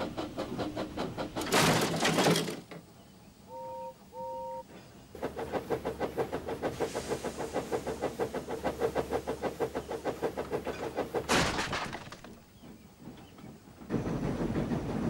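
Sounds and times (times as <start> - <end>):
steam locomotive chuffing: 0.0 - 1.9, 3.5 - 11.3, 12.5 - 15.0
steam hiss burst: 6.6 - 9.4.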